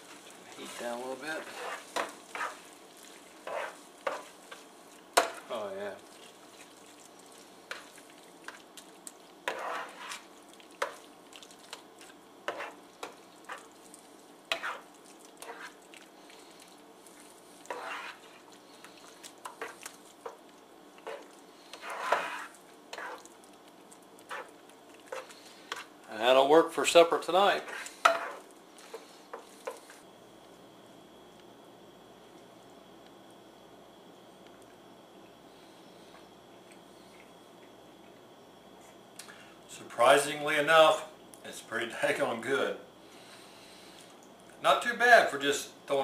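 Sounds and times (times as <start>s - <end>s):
spoon stirring thick gravy: 0.0s - 30.0s
faint sizzle: 0.0s - 46.0s.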